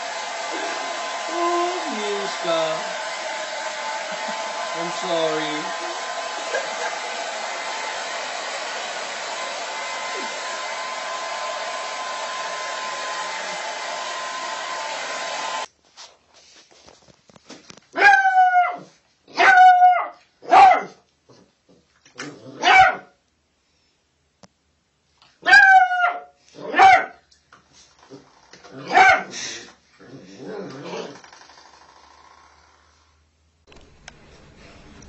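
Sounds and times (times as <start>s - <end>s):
puppy barking: 18.0s - 21.0s, 22.6s - 23.1s, 25.4s - 27.2s, 28.8s - 29.3s.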